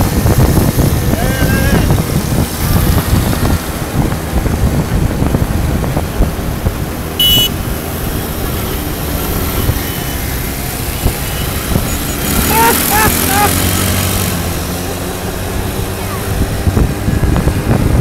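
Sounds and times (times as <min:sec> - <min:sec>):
moped engines running: 0:00.0 - 0:18.0
wind on microphone: 0:00.0 - 0:18.0
short high-pitched tone: 0:07.2 - 0:07.5.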